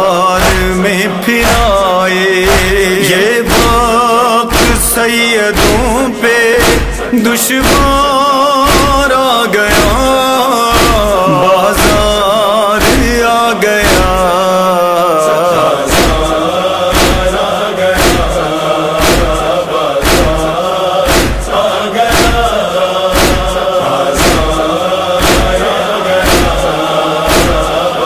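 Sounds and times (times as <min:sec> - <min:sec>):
men chanting in chorus: 0:00.0 - 0:28.0
hands slapping chests: 0:06.6 - 0:08.0, 0:15.9 - 0:16.3, 0:18.0 - 0:18.3, 0:19.0 - 0:23.6, 0:24.2 - 0:24.6, 0:25.2 - 0:25.6, 0:26.2 - 0:26.6, 0:27.3 - 0:27.7.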